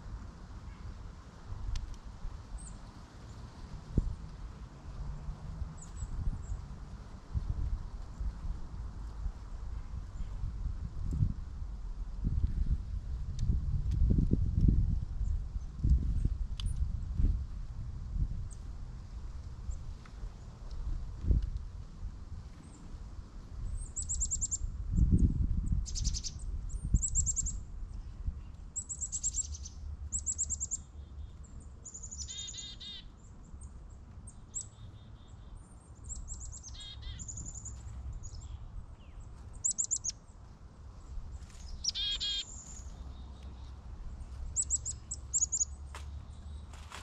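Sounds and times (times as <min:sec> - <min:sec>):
low rumble on microphone: 0:03.6 - 0:22.6
high bird chirps: 0:25.8 - 0:27.6, 0:28.8 - 0:31.3, 0:31.9 - 0:33.1, 0:36.1 - 0:40.2, 0:41.7 - 0:43.7, 0:44.6 - 0:46.5
harsh bird call series: 0:41.8 - 0:42.5.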